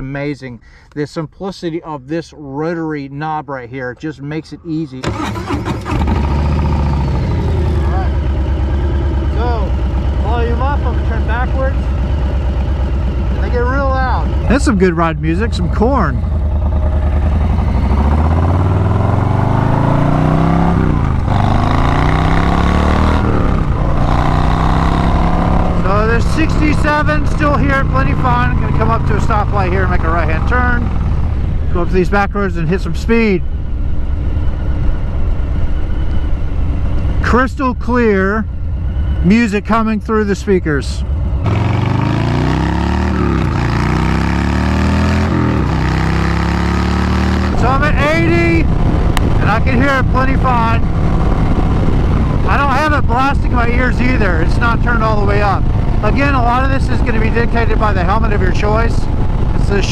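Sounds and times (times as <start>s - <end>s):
motorcycle accelerating: 5.0s - 59.9s
wind noise: 47.4s - 59.9s.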